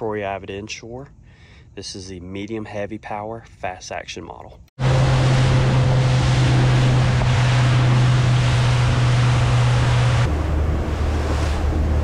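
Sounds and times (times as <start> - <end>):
boat engine drone: 4.8 - 12.0
hiss of wind and spray: 4.8 - 12.0.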